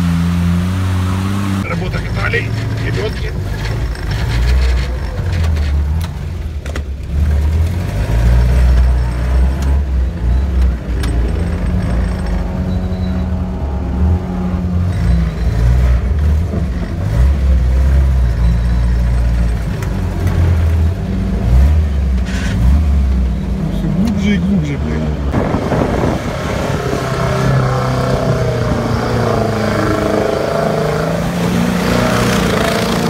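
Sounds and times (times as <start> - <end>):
vehicle engine revving under load: 7.0 - 33.0.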